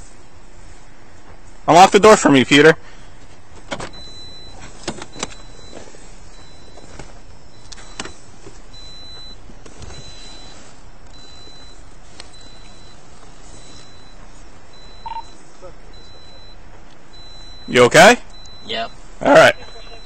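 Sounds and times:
car door and seat clicks: 3.5s - 5.5s, 6.7s - 8.6s
car door chime beeping: 3.7s - 20.0s.

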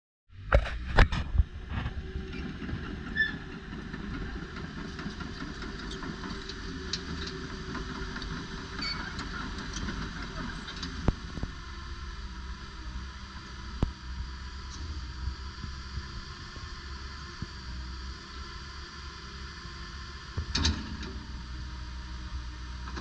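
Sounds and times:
excavator running: 0.3s - 23.0s
short high squeaks: 8.8s - 9.2s.

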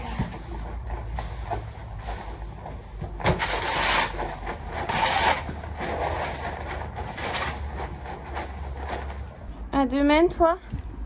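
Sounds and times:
fork scraping straw bedding: 0.0s - 9.5s.

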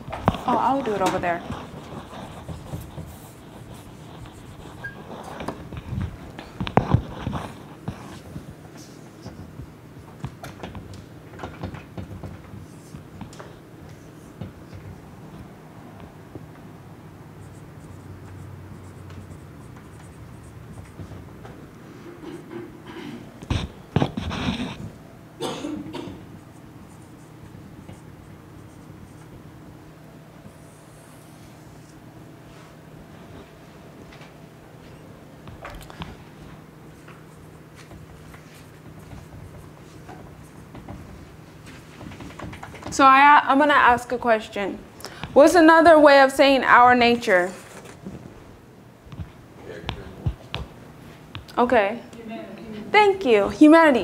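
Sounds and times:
marker scratching on whiteboard: 0.3s - 9.7s, 12.0s - 15.0s, 17.4s - 21.5s, 23.4s - 25.0s, 26.3s - 29.4s, 30.4s - 32.0s, 37.0s - 43.0s
marker squeaks and taps: 1.6s - 5.6s.

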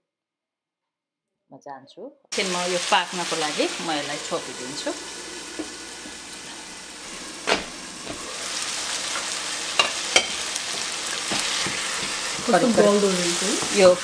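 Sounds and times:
food sizzling in a frying pan: 2.3s - 14.0s
wooden spatula stirring in pan: 5.4s - 14.0s.

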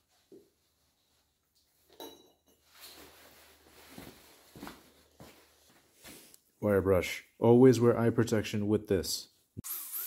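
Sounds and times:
metallic clink on concrete: 1.9s - 2.7s
soft shuffling: 2.6s - 6.4s.

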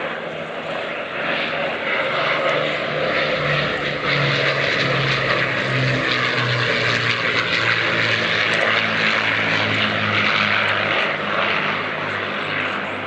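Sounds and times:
propeller plane engines passing: 0.0s - 13.0s.

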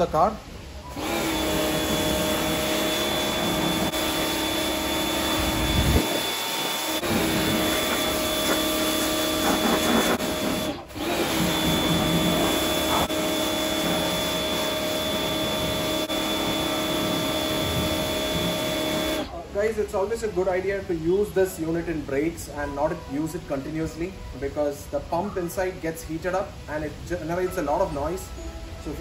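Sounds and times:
pressure washer motor drone: 0.8s - 19.4s
high-pressure spray hissing: 0.9s - 19.3s.

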